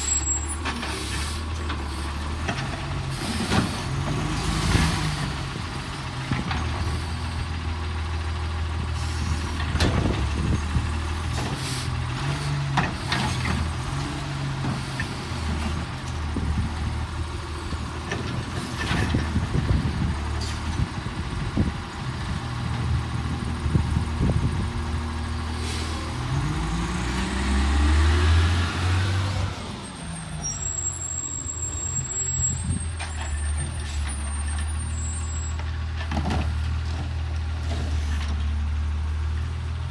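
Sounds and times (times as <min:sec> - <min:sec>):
diesel engine running: 0:00.0 - 0:39.9
engine revving: 0:26.1 - 0:29.8.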